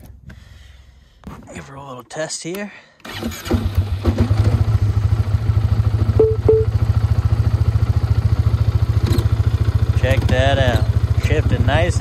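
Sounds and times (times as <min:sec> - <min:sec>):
engine starting and idling: 0:03.0 - 0:05.6
short beeps: 0:06.2 - 0:06.8.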